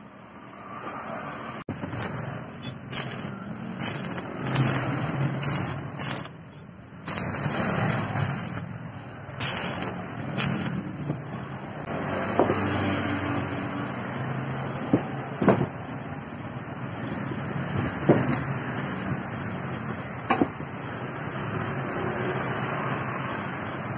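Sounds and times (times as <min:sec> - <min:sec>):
arc welding crackling: 0:01.7 - 0:11.0.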